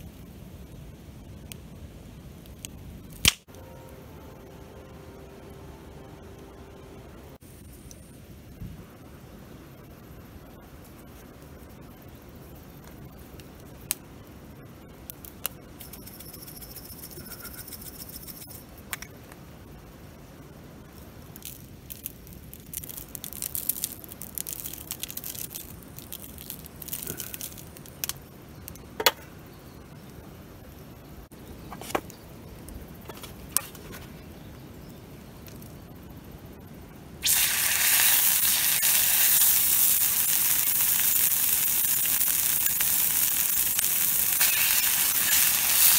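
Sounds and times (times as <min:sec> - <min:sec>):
spice shaker shaking: 0:15.8 - 0:18.7
steak sizzling in skillet: 0:37.2 - 0:45.9.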